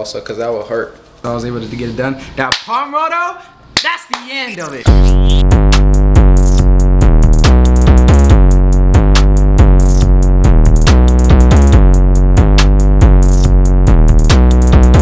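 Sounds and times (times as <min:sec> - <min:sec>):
electronic music with drum-machine beat: 0:04.3 - 0:15.0.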